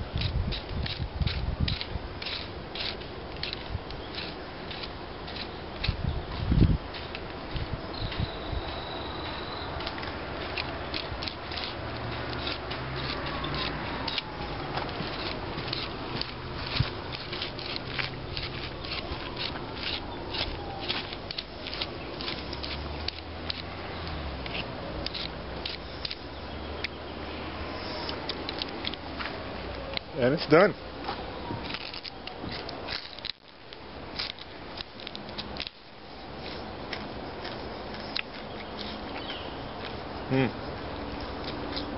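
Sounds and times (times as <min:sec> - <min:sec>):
knife scraping thistle leaves: 0:00.1 - 0:06.0, 0:09.7 - 0:27.0, 0:27.6 - 0:29.3, 0:31.6 - 0:41.9.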